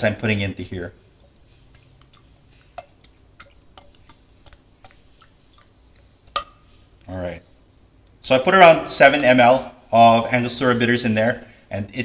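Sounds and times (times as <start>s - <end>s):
faint ticks and drips: 1.2s - 7.1s.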